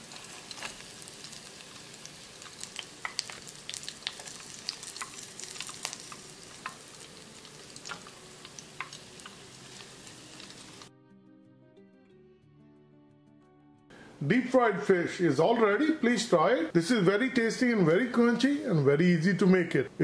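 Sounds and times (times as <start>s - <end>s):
fish deep-frying in oil: 0.0s - 10.9s.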